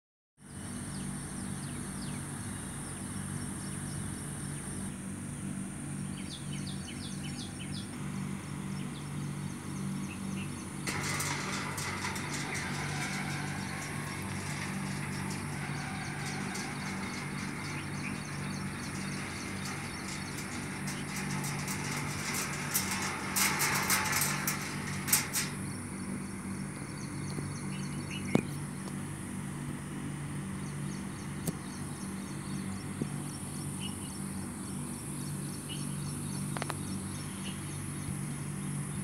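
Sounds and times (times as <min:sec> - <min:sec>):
low mechanical hum: 0:00.4 - 0:39.0
birds chirping: 0:06.0 - 0:28.7
rapid high clicking: 0:10.8 - 0:26.8.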